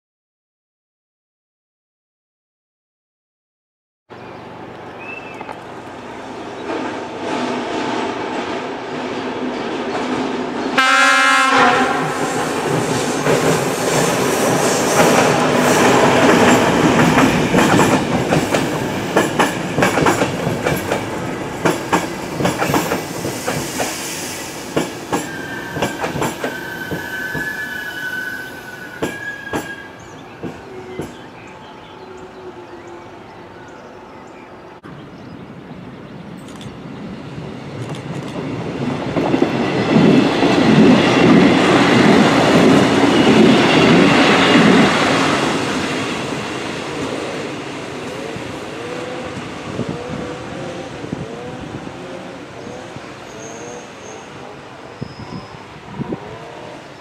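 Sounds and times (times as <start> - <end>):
train horn blast: 10.8 - 12.6
train wheels clattering: 12.2 - 27.6, 28.9 - 31.3
wheel squeal: 25.2 - 30.1.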